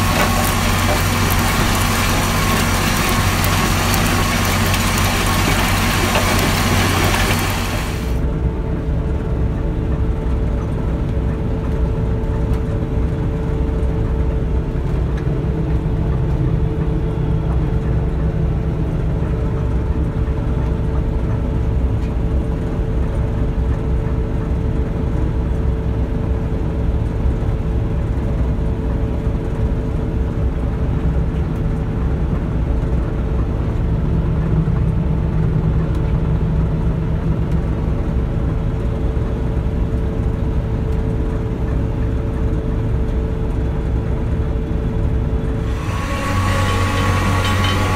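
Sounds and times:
machinery whine: 0.0 - 21.6, 38.0 - 47.9
combine harvester drone: 0.0 - 47.9.

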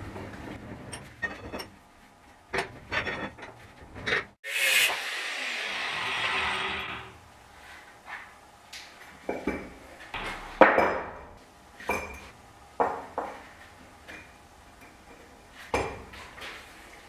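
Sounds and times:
metal clanks and clinks: 0.9 - 1.8, 2.5 - 4.3.

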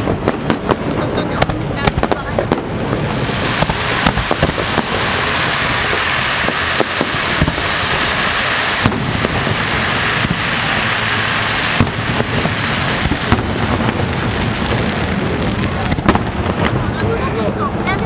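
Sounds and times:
firework shell bangs: 0.0 - 16.9
fireworks crackling: 0.0 - 18.0.

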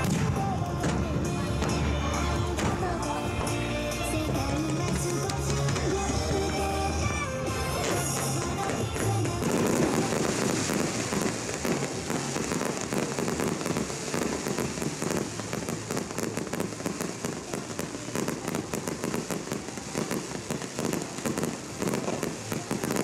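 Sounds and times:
fireworks crackling: 0.0 - 23.0.

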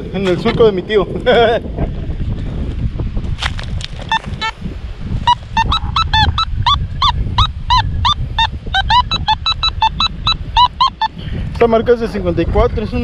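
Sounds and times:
wind on microphone: 0.0 - 13.0
metal detector beeps: 4.1 - 4.6, 5.2 - 11.2.

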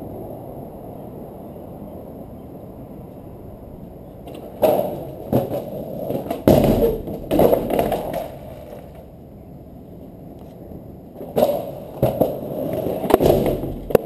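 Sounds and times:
skateboard wheels knocking on door: 4.3 - 9.0, 11.2 - 14.0
skateboard clattering on cellar door: 4.3 - 9.1, 11.2 - 14.0.

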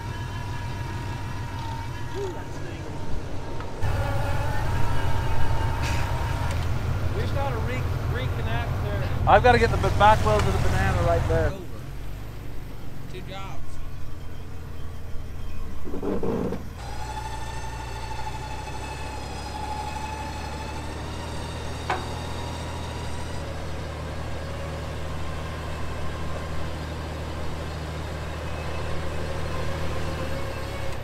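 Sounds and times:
high-pitched whine: 0.0 - 9.0
vehicle engine idling: 0.0 - 31.0.

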